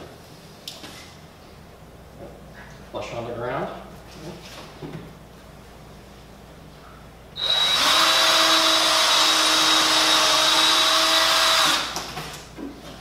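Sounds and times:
power drill drilling into wood: 7.4s - 12.0s.

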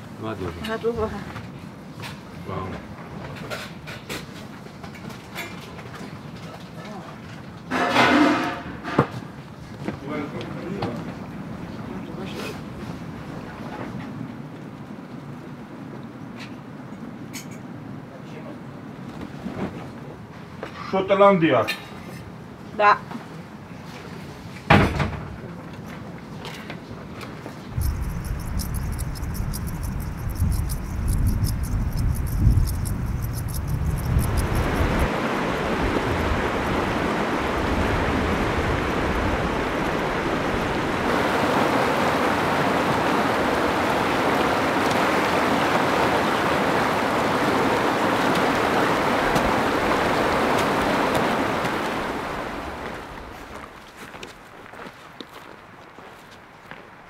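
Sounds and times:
low gusty rumble: 27.7s - 41.4s
river rushing over rocks: 34.8s - 53.3s.

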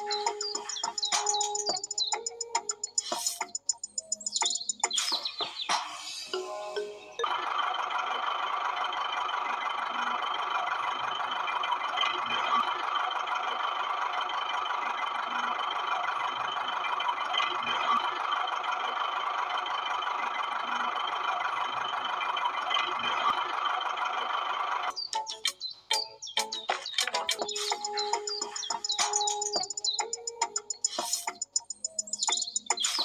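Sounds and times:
toy motor whirring: 27.4s - 33.0s.

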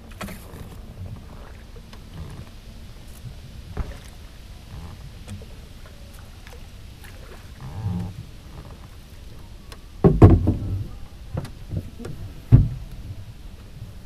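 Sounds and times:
oar knocking against boat: 9.7s - 13.2s.

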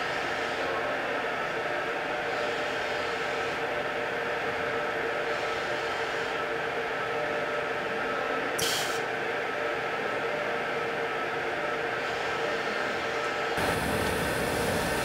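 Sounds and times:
machine mechanical hum: 0.0s - 15.0s
machine whining tones: 11.7s - 15.0s.

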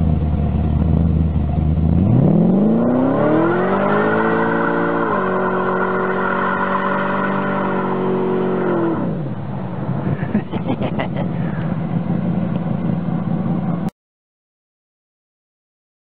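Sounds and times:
hot rod engine revving: 0.0s - 9.5s
engine crackles: 0.0s - 13.9s.

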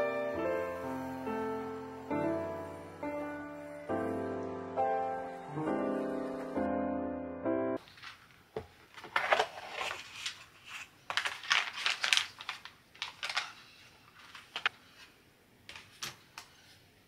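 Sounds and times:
packaging rustling: 7.8s - 14.7s.

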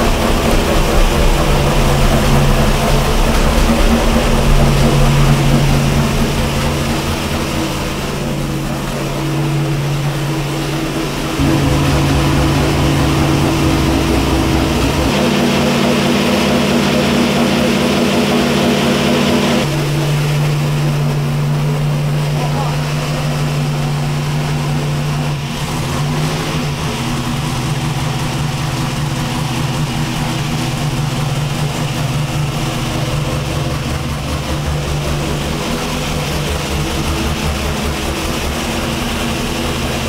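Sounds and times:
engine running at fast idle: 0.0s - 40.0s.

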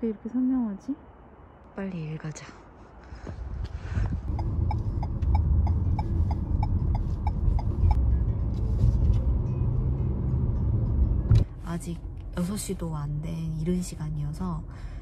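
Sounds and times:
car engine and road noise: 0.0s - 15.0s
turn signal ticking: 4.0s - 8.6s.

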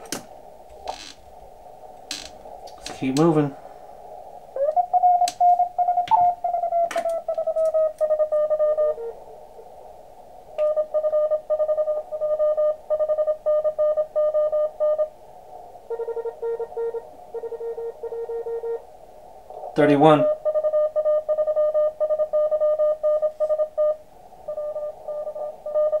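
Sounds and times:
radio band hiss: 0.4s - 5.8s, 19.3s - 20.4s
morse code tones: 4.6s - 9.2s, 10.6s - 15.1s, 15.9s - 18.8s, 19.8s - 26.0s
sliding radio tone: 4.6s - 9.7s, 19.6s - 26.0s.

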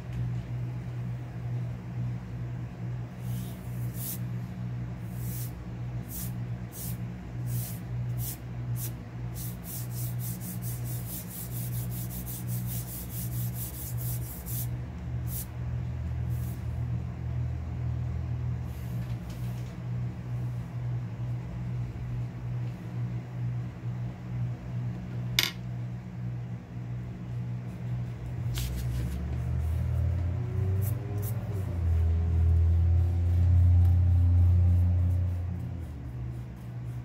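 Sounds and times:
steady low hum: 0.0s - 37.0s
pencil scratching on paper: 9.4s - 14.7s.

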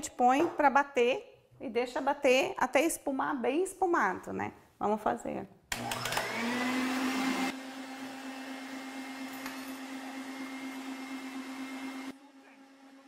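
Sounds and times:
stand mixer motor running: 5.8s - 13.0s.

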